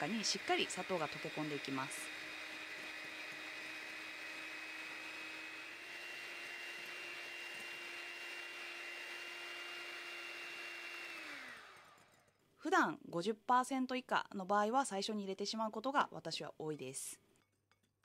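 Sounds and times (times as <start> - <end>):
electric hand mixer running: 0.0 - 12.3.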